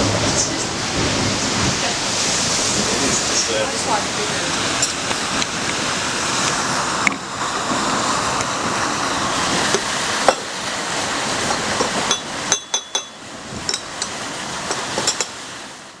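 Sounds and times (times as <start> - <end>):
steady rushing noise: 0.0 - 16.0
teaspoon clinking in teacup: 12.1 - 13.8.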